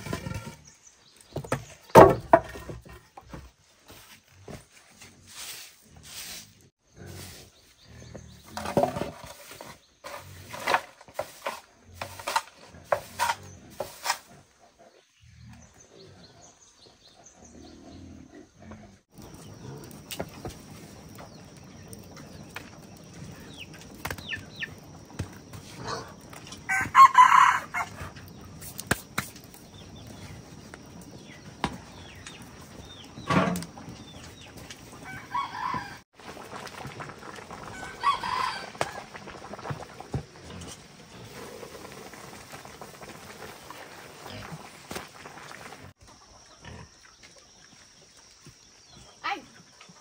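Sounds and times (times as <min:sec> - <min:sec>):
roosters crowing: 0:25.8 - 0:28.4, 0:34.9 - 0:36.1, 0:37.6 - 0:39.5.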